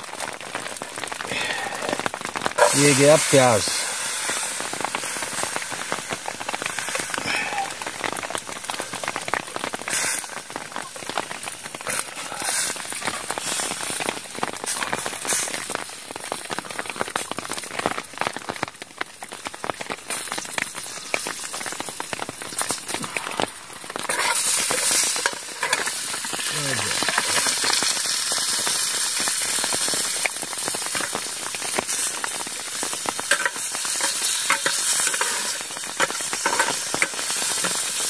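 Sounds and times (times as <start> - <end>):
heavy rain on a tent: 0.0 - 38.0
onions sizzling in a pan: 0.0 - 38.0.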